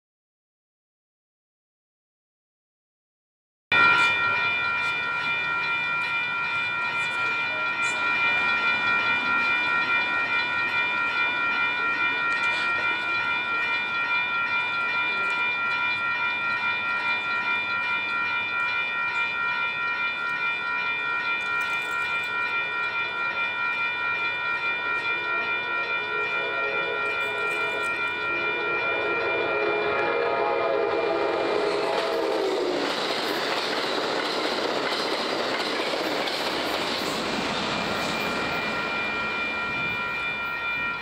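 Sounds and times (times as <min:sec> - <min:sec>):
crossing warning bell ringing: 0:03.7 - 0:41.0.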